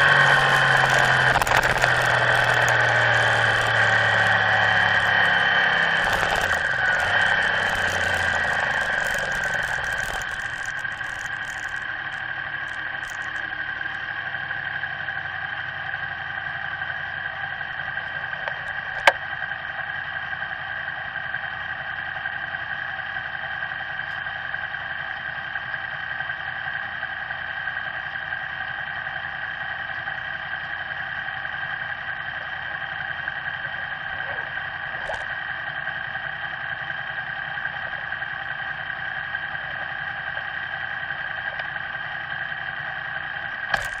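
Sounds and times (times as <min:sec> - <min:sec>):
motorcycle engine slowing and idling: 0:00.0 - 0:44.0
sharp click: 0:43.7 - 0:44.0.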